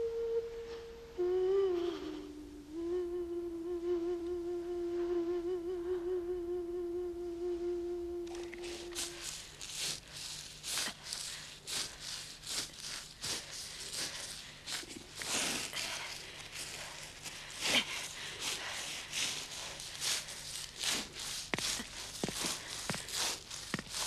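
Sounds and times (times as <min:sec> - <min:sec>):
crawling on woven mat: 0:08.3 - 0:24.0.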